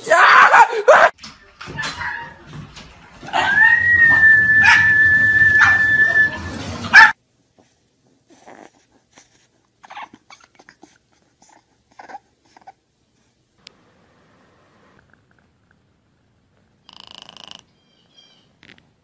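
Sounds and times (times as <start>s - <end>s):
steady high whistle: 3.9s - 6.5s
puppy whimpering and snuffling: 8.3s - 12.8s.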